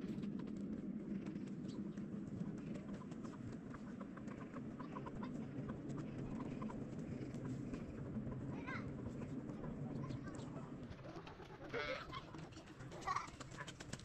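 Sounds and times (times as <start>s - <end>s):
low outdoor rumble: 0.0s - 14.0s
chicken clucking: 2.8s - 8.7s, 9.6s - 13.8s.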